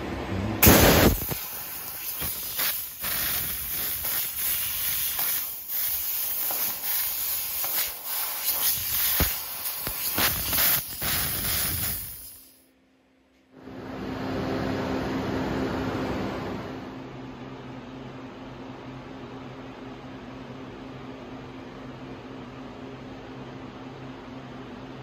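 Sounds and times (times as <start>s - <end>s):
hiss of assist gas: 0.6s - 12.6s.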